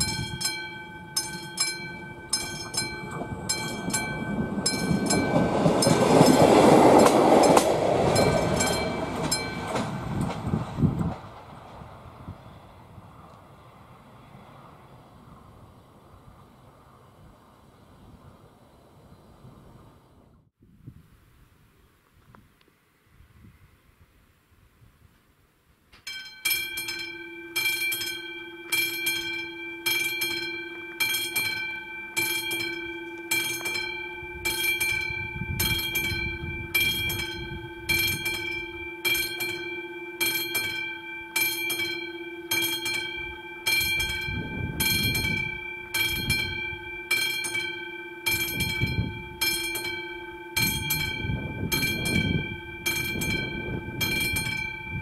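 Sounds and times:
level crossing warning bell: 0:00.0 - 0:10.6, 0:26.1 - 0:55.0.

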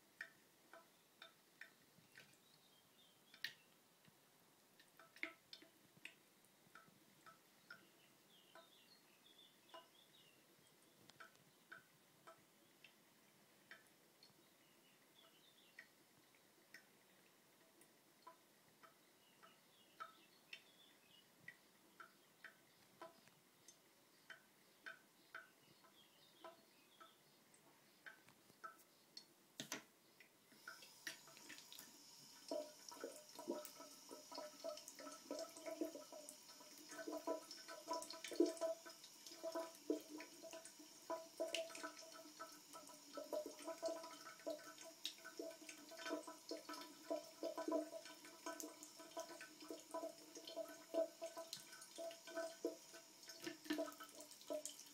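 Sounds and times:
water dripping into washbasin: 0:00.0 - 0:54.9
running water trickle splashing: 0:30.6 - 0:54.9.

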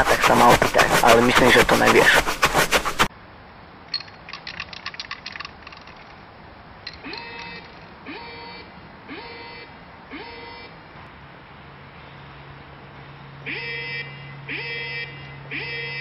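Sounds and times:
quick run of clicks: 0:00.0 - 0:03.1, 0:04.0 - 0:06.2.

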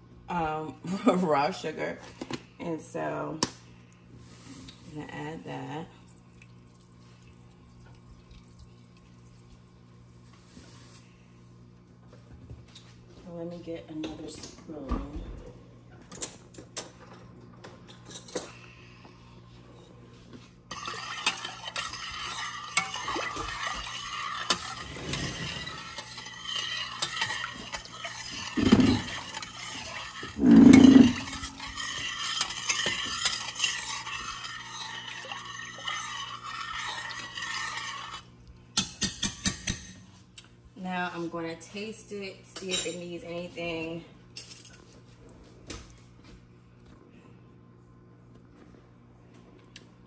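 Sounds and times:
metal spoon scraping saucepan: 0:20.7 - 0:39.9.

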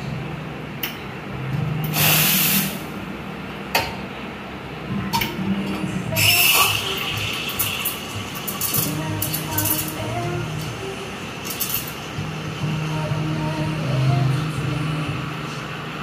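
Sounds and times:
steam wand hissing: 0:01.9 - 0:02.8.

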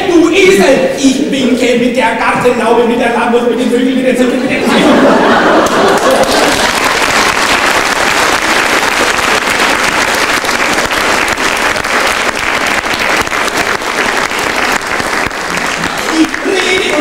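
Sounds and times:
audience applauding: 0:05.1 - 0:17.0.

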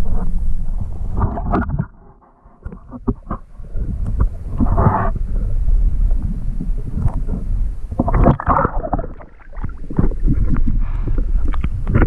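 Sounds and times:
water sloshing against camera: 0:00.0 - 0:12.0
water splashing: 0:06.1 - 0:11.8.

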